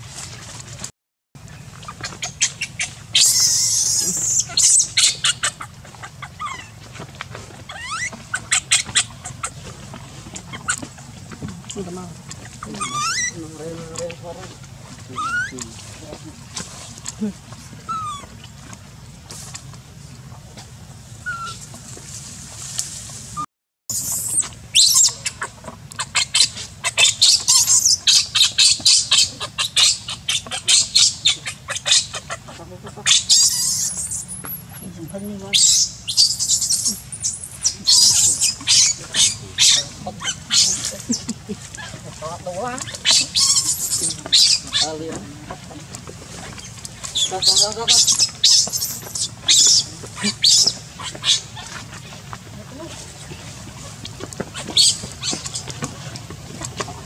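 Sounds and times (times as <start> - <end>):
baby monkey squeaking: 1.9 - 6.8, 7.7 - 9.6, 10.3 - 11.1, 12.6 - 13.4, 15.1 - 15.6, 17.8 - 18.4, 21.2 - 21.7, 23.9 - 45.8, 46.4 - 51.9, 54.5 - 55.8.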